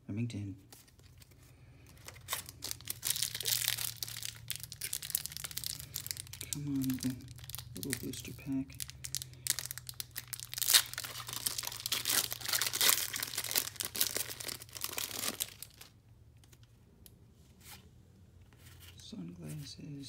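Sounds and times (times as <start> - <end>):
foil wrapper crinkling and ripping: 0.8 - 16.6.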